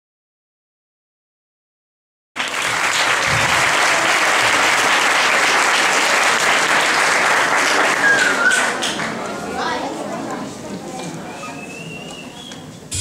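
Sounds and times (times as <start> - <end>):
audience applauding: 2.4 - 9.4.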